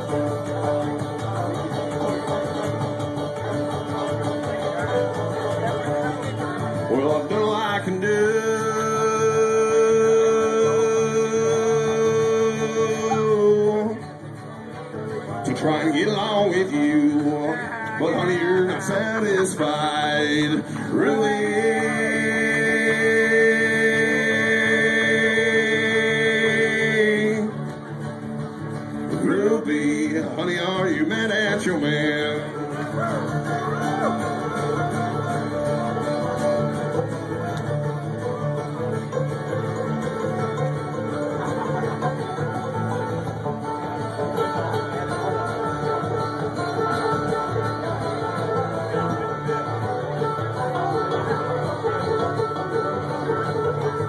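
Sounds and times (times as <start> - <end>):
acoustic guitar: 0.0 - 54.0
banjo: 0.0 - 54.0
man singing long high note: 6.9 - 14.0, 15.6 - 27.6.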